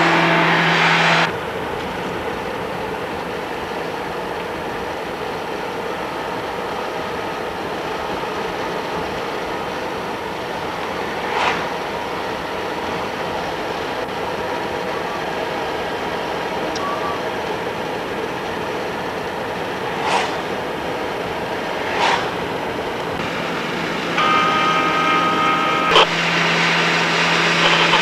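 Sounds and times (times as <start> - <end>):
car road and wind noise: 0.0 - 28.0
brief sharp sound: 11.2 - 11.8, 20.0 - 20.5, 21.8 - 22.4.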